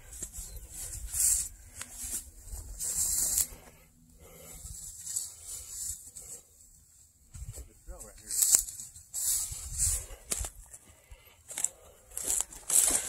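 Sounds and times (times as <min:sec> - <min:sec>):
dry grass swishing against legs: 0:00.0 - 0:06.6, 0:07.3 - 0:10.6.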